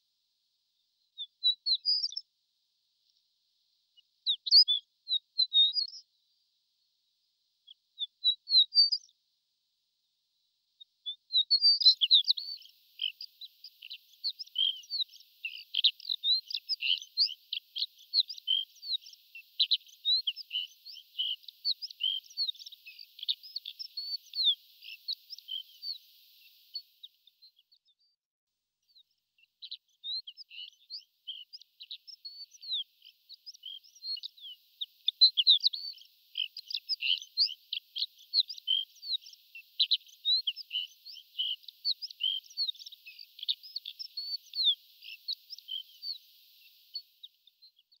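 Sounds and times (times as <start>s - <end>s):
lark singing high tinkling notes: 1.2s - 2.3s, 4.0s - 6.1s, 7.7s - 9.2s, 10.8s - 27.6s, 28.9s - 48.0s.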